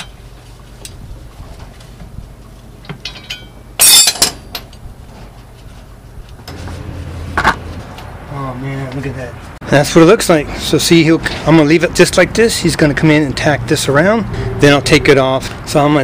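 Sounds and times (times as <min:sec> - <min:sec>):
steel tools clinking: 0:03.0 - 0:04.8.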